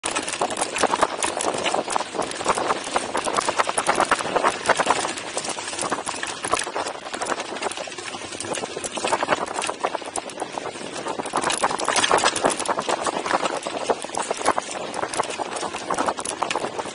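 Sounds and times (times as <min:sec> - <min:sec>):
bike rattling and knocking: 0:00.0 - 0:16.9.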